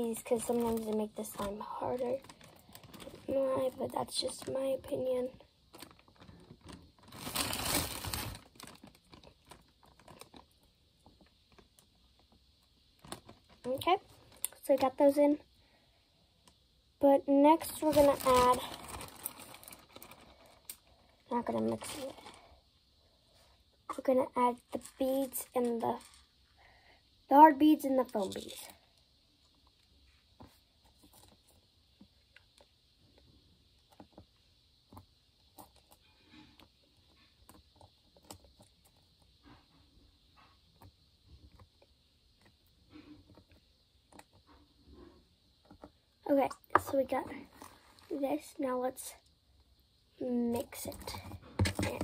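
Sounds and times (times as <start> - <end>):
plastic bag crinkling and rattling: 0.0 - 15.0, 17.5 - 22.6, 24.0 - 26.3, 28.0 - 28.8.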